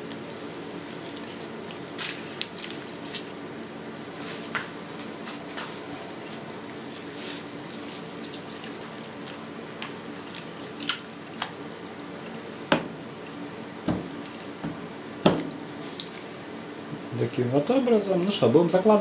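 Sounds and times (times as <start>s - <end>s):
cheese curd squelching: 0.0s - 14.6s, 15.5s - 16.7s
sharp wet slaps: 9.3s - 11.6s.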